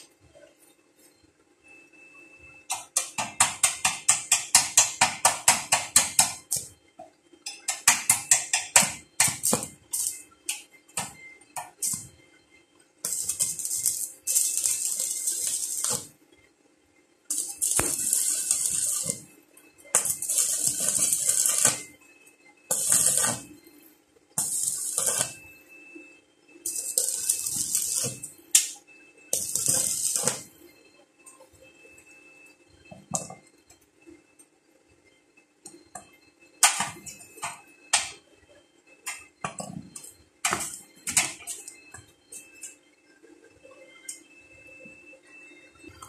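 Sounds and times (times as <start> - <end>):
arc welder hissing and crackling: 2.7 - 6.7, 7.7 - 12.1, 13.0 - 16.2, 17.3 - 19.3, 19.9 - 21.9, 22.7 - 23.6, 24.4 - 25.4, 26.6 - 30.5.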